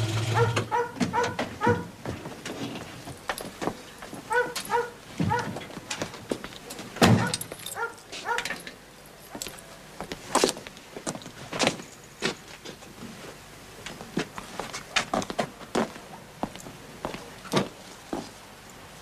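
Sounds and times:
footsteps on hard ground: 1.1s - 6.7s, 13.9s - 18.4s.

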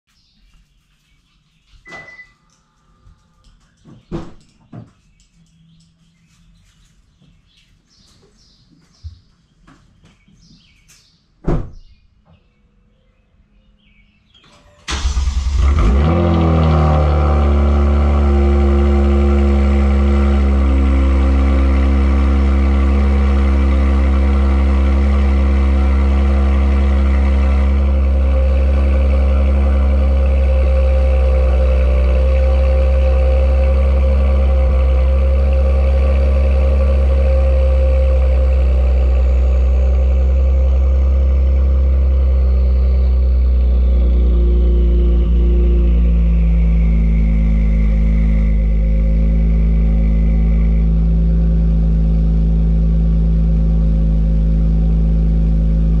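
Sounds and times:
car engine idling: 14.8s - 56.0s.

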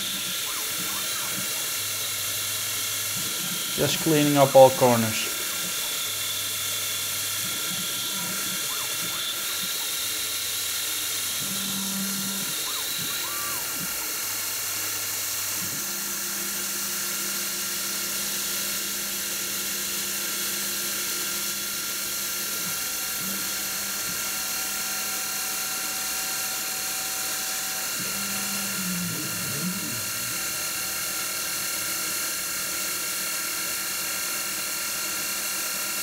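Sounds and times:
milling spindle high hiss: 0.0s - 14.2s
axis motors humming: 0.0s - 16.1s, 26.5s - 31.8s.

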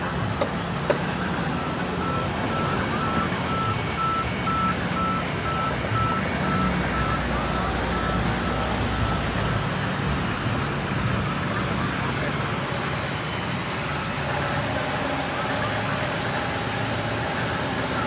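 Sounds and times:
band sawmill running: 0.0s - 18.0s
electronic warning beeps: 1.0s - 9.7s.

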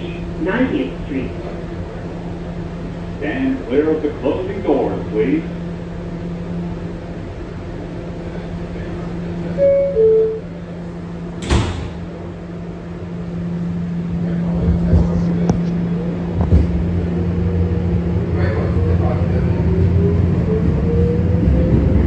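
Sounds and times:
steady electrical hum: 0.0s - 19.9s
subway car rumble: 0.0s - 22.0s
two-note descending chime: 9.6s - 10.5s
sliding doors closing thump: 11.4s - 12.1s.

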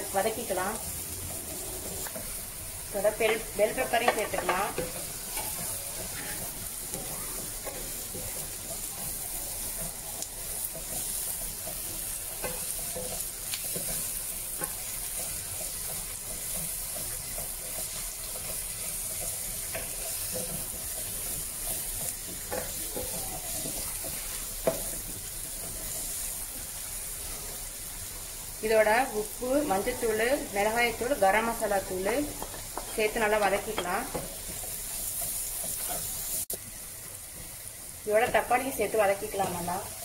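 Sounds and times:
vegetables sizzling in oil: 0.0s - 40.0s
spatula scraping pan: 1.3s - 26.3s, 29.6s - 36.4s
spatula tapping pan: 3.1s - 26.2s, 29.8s - 36.2s.

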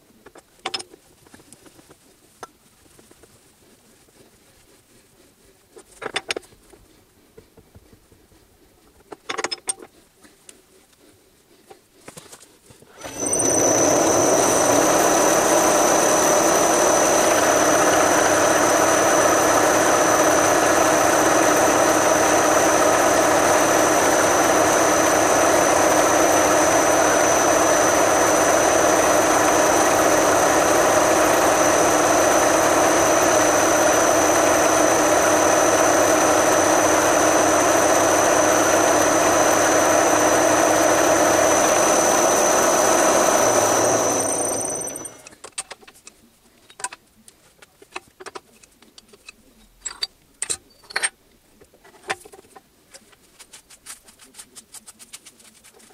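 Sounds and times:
milling machine cutting steel: 13.0s - 45.4s.

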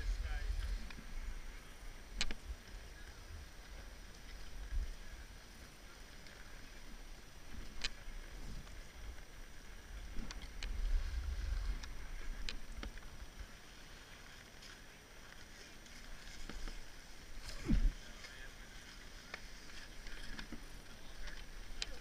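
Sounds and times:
skis sliding over packed snow: 0.0s - 22.0s
ski gear clicks and knocks: 2.2s - 2.4s, 7.6s - 8.0s, 11.7s - 13.1s.

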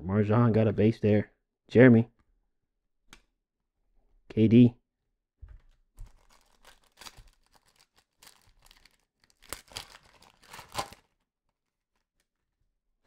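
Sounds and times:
plastic wrapper crinkling and tearing: 6.0s - 12.4s.

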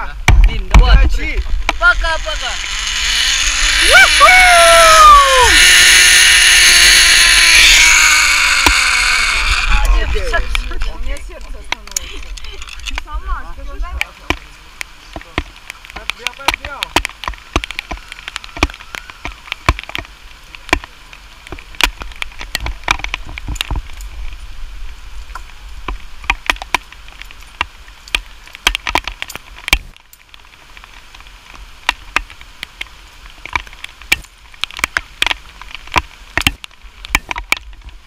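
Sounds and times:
low wind rumble: 0.0s - 16.0s.

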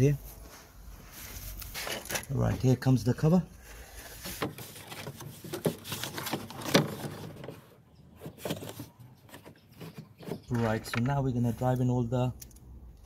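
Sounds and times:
plastic cover scraping: 4.0s - 10.8s.

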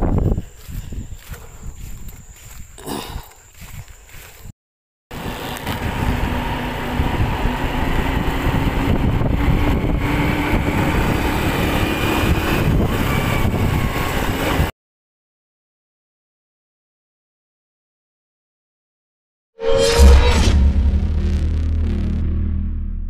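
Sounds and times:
wind rush on microphone: 0.0s - 4.5s, 5.2s - 14.7s
scooter engine hum: 5.1s - 14.7s
faint rising tone: 19.6s - 23.0s.

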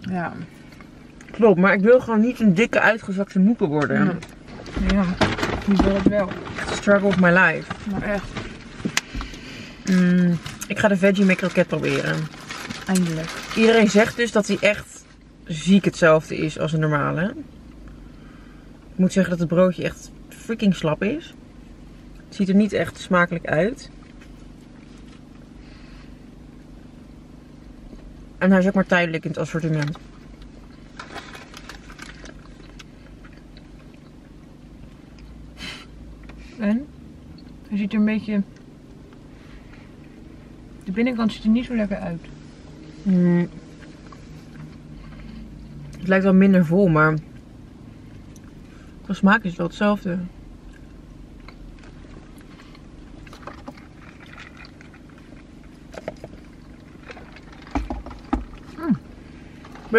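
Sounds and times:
car cabin hum: 0.0s - 35.3s, 36.1s - 59.9s
food wrappers crinkling: 9.9s - 15.1s, 30.4s - 34.0s, 53.2s - 58.8s
people chewing: 50.6s - 59.0s.

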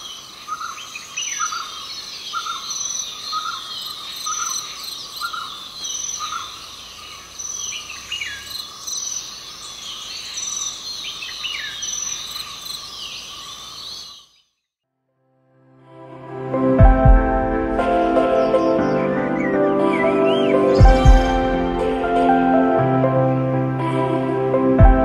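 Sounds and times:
birds calling: 0.0s - 14.5s, 18.0s - 22.1s.

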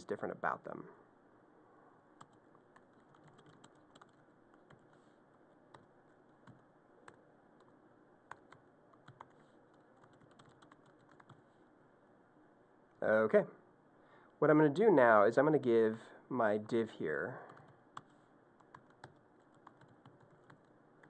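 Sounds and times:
faint keyboard typing: 2.2s - 11.6s, 17.4s - 21.0s.

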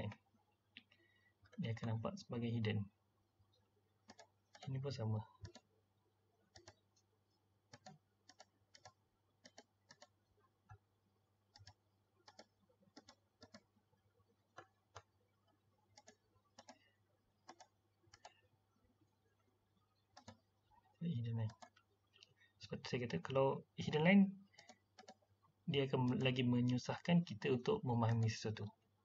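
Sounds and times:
computer mouse clicks: 4.0s - 4.8s, 5.4s - 5.7s, 6.5s - 7.1s, 7.7s - 10.8s, 11.5s - 13.7s, 14.5s - 18.4s, 20.1s - 20.5s, 21.4s - 22.4s, 24.5s - 25.2s, 26.0s - 26.4s.

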